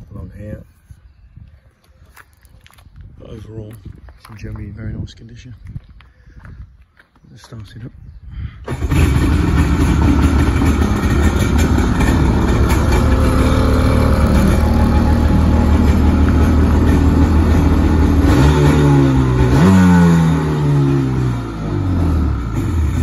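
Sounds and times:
jet ski engine idling and revving: 8.7s - 23.0s.

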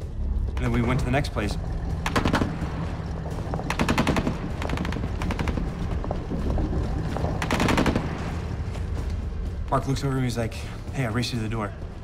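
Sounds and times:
low rumble: 0.0s - 12.0s
automatic gunfire bursts: 3.7s - 5.4s, 7.4s - 8.1s.

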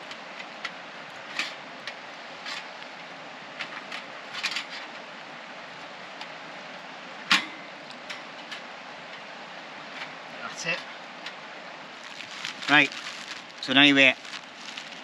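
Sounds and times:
steady hiss of burning: 0.0s - 15.0s
charcoal crackling and popping: 11.2s - 15.0s.

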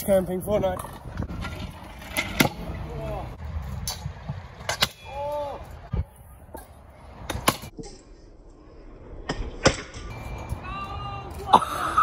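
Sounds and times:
scooter rolling on concrete: 0.5s - 4.7s.

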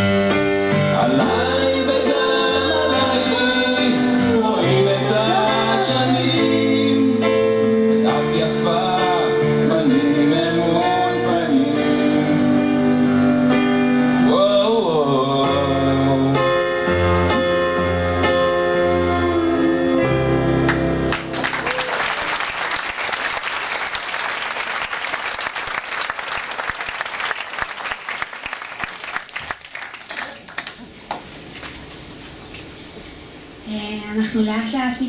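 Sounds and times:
person singing: 0.9s - 7.3s, 14.2s - 16.8s, 17.4s - 20.7s
live band accompaniment: 15.3s - 21.8s
audience applause: 20.7s - 31.3s.

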